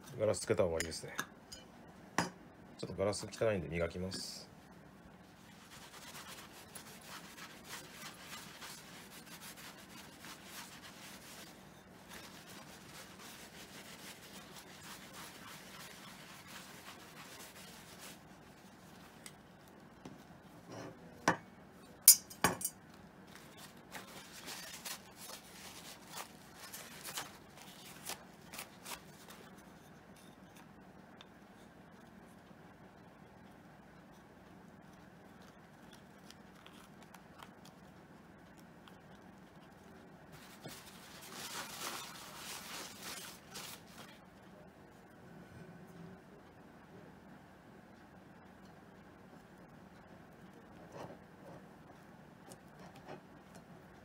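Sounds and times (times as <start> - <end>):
tissue rubbing on glass: 5.2 - 19.8, 23.2 - 30.0, 40.4 - 44.2.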